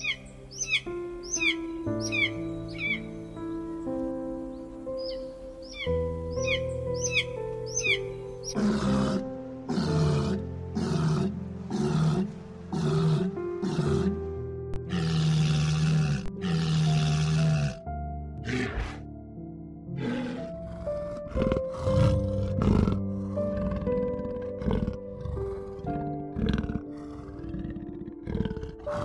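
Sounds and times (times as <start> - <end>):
walruses calling: 0.0 - 14.2
background music: 0.0 - 29.0.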